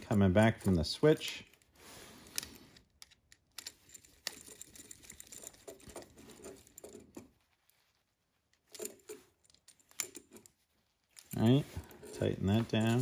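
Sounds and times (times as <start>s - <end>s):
hands fitting wire terminal clicks: 2.3s - 7.2s.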